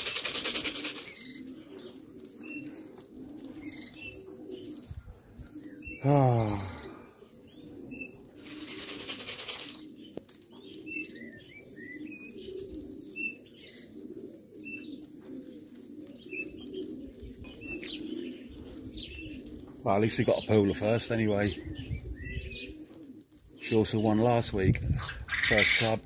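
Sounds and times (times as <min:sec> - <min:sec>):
wings flapping: 0:00.0 - 0:01.4, 0:08.3 - 0:10.4
pigeons cooing: 0:00.0 - 0:26.0.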